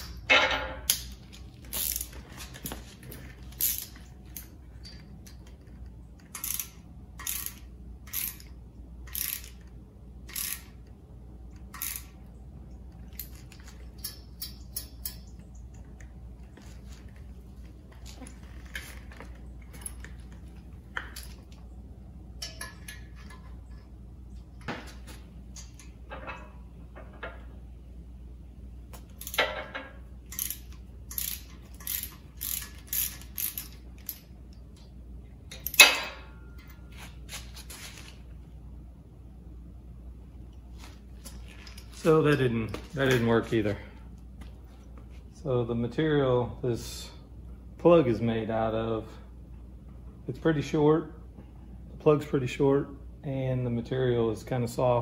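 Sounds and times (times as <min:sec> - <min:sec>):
hand ratchet clicking: 0:06.2 - 0:08.5, 0:09.1 - 0:09.7, 0:10.3 - 0:10.7, 0:11.7 - 0:12.1, 0:30.3 - 0:34.3.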